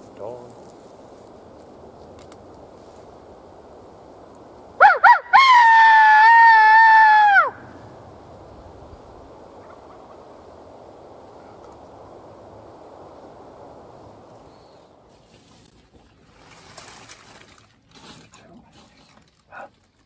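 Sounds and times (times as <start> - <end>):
loud swooping call: 4.8 - 7.6.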